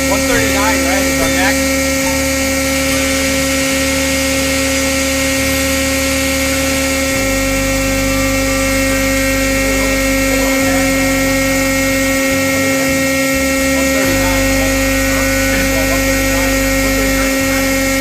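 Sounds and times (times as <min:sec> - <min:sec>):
high whine tones: 0:00.0 - 0:18.0
hydraulic power unit humming: 0:00.0 - 0:18.0.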